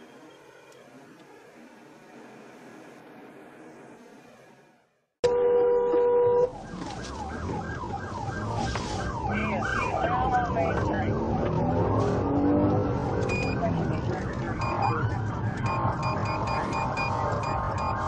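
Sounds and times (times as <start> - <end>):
traffic noise: 0.0 - 18.0
police siren yelping: 5.3 - 18.0
electronic beep: 13.3 - 13.6, 14.6 - 15.0, 15.6 - 18.0.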